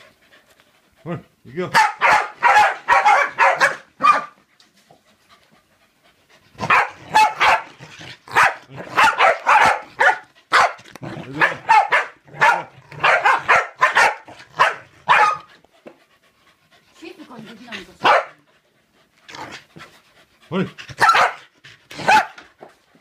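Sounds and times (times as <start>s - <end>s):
dogs barking excitedly: 1.1s - 4.5s, 6.5s - 15.7s, 17.0s - 18.6s, 19.3s - 22.8s.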